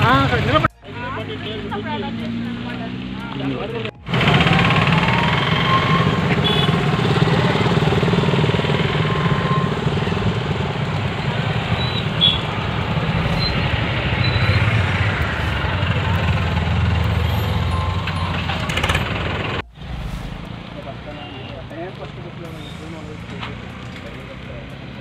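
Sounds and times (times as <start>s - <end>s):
vehicle engines running: 0.0s - 25.0s.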